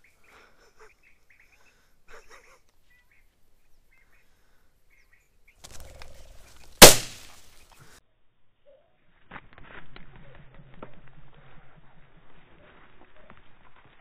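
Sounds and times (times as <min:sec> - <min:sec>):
bird chirps: 0:04.9 - 0:06.7
shotgun shot: 0:06.8 - 0:07.4.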